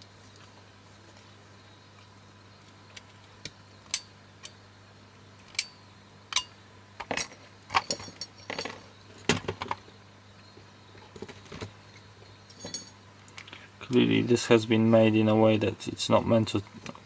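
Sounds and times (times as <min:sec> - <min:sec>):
metal clicks and clinks: 0:05.5 - 0:08.8, 0:12.5 - 0:13.0.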